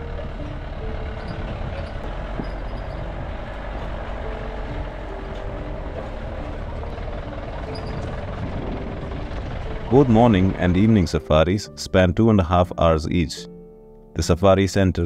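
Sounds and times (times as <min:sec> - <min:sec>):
jeep engine running: 0:00.0 - 0:11.5.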